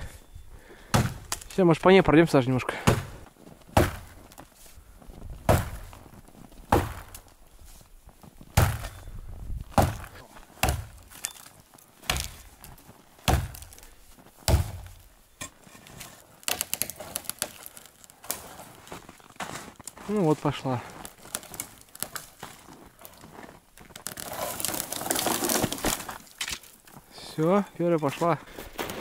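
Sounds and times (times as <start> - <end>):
axe chopping into tree trunk: 0.9 - 1.5, 2.7 - 4.2, 5.4 - 5.9, 6.7 - 7.2, 8.5 - 9.0, 9.7 - 11.1, 12.0 - 12.4, 13.2 - 13.8, 14.4 - 15.0.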